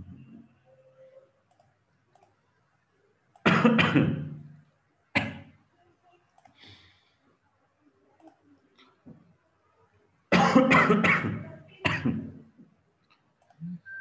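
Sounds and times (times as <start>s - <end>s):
person coughing: 3.5s - 4.3s, 10.3s - 12.3s.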